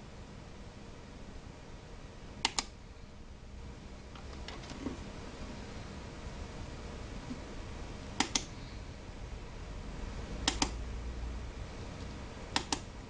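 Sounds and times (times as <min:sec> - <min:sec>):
push-button switch clicking: 0:10.5 - 0:10.8, 0:12.6 - 0:12.9.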